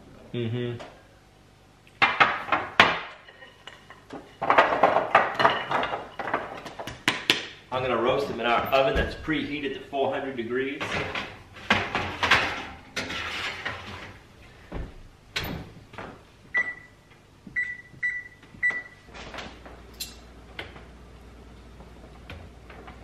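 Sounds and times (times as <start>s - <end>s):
metal pan sliding onto oven rack: 10.8s - 14.2s.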